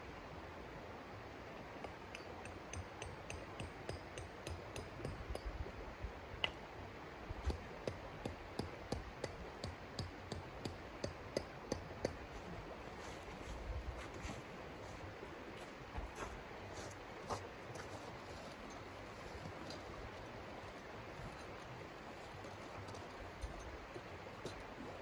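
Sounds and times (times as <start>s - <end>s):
flowing river: 0.0s - 25.0s
tent stake being hammered: 1.9s - 5.5s, 7.4s - 12.3s.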